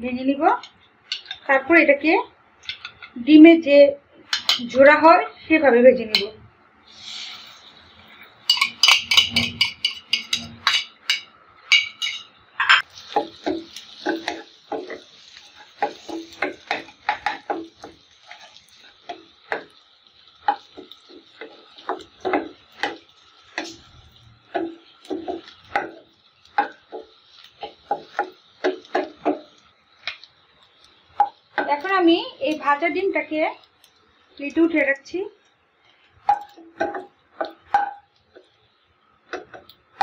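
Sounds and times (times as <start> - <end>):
faint sizzle: 0.0 - 40.0
wooden spatula scraping a pan: 12.0 - 19.7.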